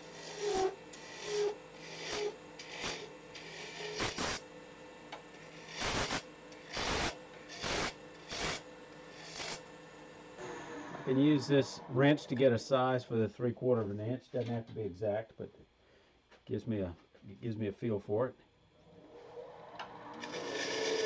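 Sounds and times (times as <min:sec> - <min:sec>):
gouge scraping spinning wood: 0:00.0 - 0:04.3, 0:06.6 - 0:09.6, 0:20.1 - 0:21.0
lathe humming: 0:00.0 - 0:12.6, 0:18.9 - 0:21.0.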